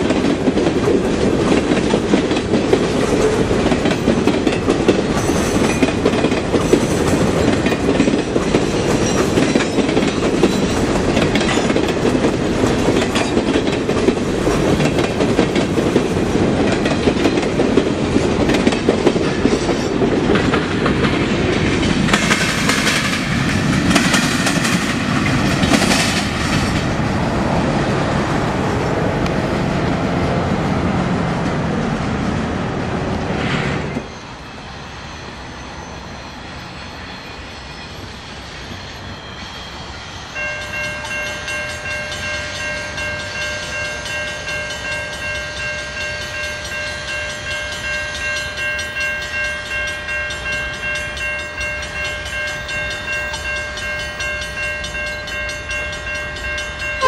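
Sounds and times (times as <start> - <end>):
train wheels clattering on rails: 0.0 - 27.6, 36.6 - 57.0.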